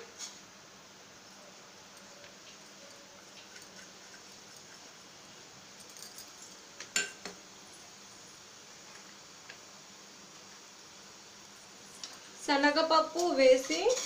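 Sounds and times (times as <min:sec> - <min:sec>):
faint steady hiss: 0:00.0 - 0:14.0
metal utensil clinking down: 0:13.1 - 0:14.0.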